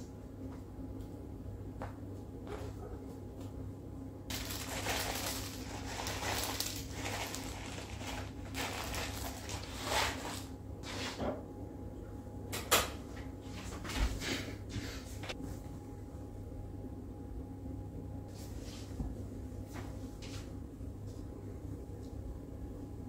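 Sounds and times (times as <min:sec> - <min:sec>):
sugar rustling from foil bag: 0:04.3 - 0:10.5.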